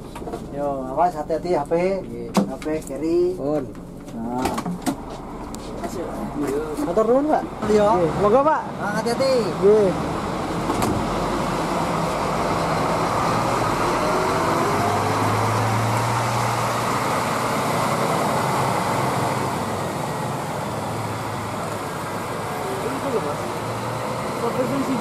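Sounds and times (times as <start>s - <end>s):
road noise: 0.0s - 25.0s
coach engine pulling away: 9.5s - 25.0s.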